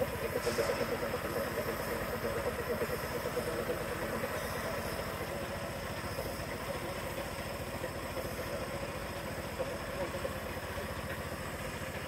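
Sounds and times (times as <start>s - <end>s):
engine idling: 0.0s - 12.0s
spray gun air hiss: 0.1s - 7.3s.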